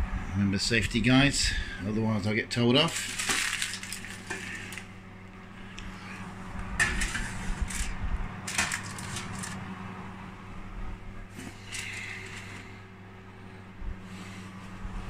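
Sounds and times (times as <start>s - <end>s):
steady low hum: 0.0s - 15.0s
metal tray clanking: 6.8s - 7.9s
tray scraping on oven shelf: 6.8s - 9.6s.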